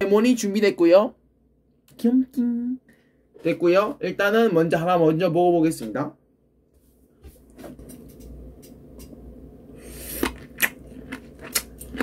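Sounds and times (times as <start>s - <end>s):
wet mouth sounds: 9.8s - 12.0s
juicy squishing and smacks: 10.2s - 12.0s.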